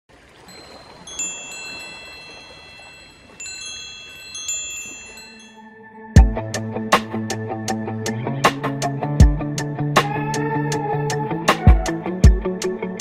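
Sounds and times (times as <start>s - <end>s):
wind chimes tinkling: 0.4s - 5.8s
guitar music: 5.6s - 13.0s.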